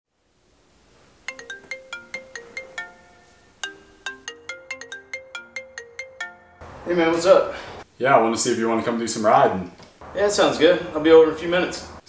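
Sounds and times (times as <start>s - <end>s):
phone ringtone melody: 1.3s - 6.7s.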